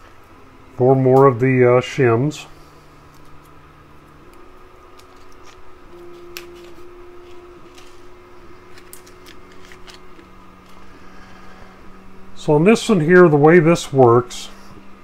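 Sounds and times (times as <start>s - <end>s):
faint steady tone: 5.8s - 8.8s.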